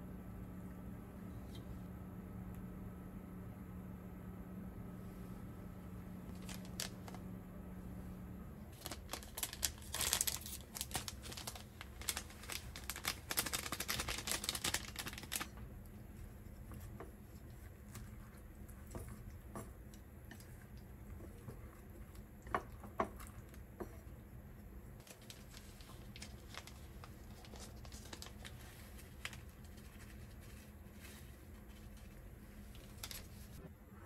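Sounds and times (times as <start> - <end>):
dry flakes crinkling and rustling: 6.2 - 7.3, 8.7 - 15.7, 25.0 - 33.6.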